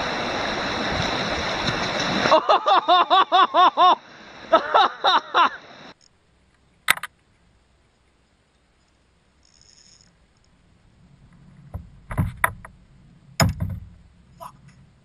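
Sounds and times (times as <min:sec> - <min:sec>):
person laughing hard: 0:02.3 - 0:05.6.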